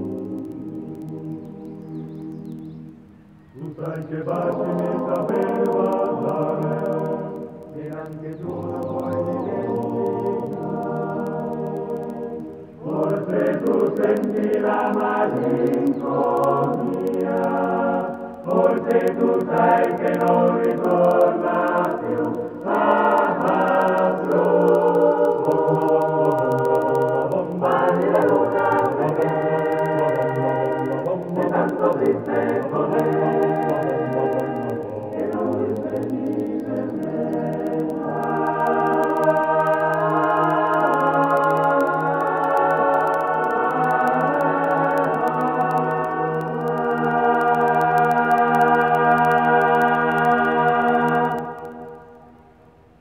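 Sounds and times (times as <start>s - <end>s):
voices singing in harmony: 0.0s - 53.0s.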